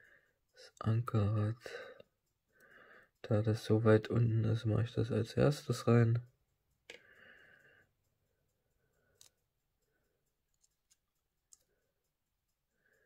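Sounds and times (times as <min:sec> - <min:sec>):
tweezers clicking: 0:08.0 - 0:12.6.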